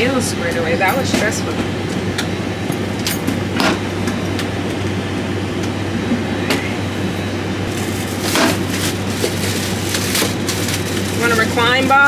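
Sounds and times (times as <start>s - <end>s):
cabin ventilation rushing: 0.0s - 12.0s.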